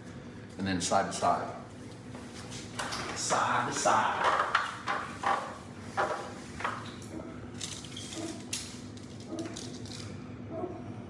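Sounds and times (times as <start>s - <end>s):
low room hum: 0.0s - 11.0s
feet clunking on stepladder: 2.2s - 7.3s
rasps and ticks against wall: 2.8s - 10.0s.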